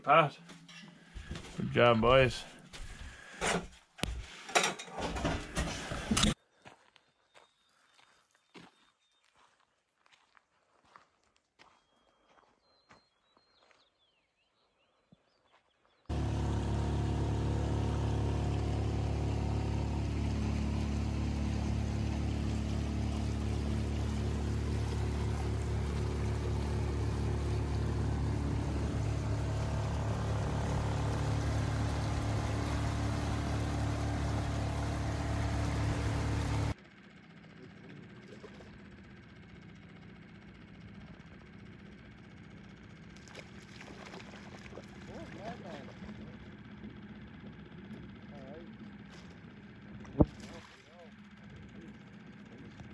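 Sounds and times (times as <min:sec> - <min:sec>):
wind: 0:00.0 - 0:52.9
wake water rushing: 0:16.1 - 0:36.8, 0:43.2 - 0:46.4
boat motor running: 0:16.1 - 0:52.9.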